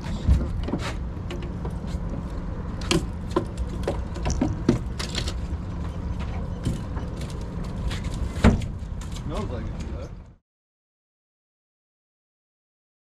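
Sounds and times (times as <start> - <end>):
boat engine hum: 0.0 - 10.2.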